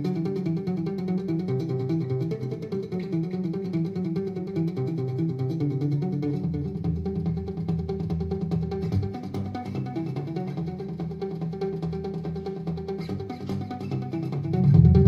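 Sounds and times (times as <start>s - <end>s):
acoustic guitar picking: 0.0s - 15.0s
deep bass: 14.6s - 15.0s.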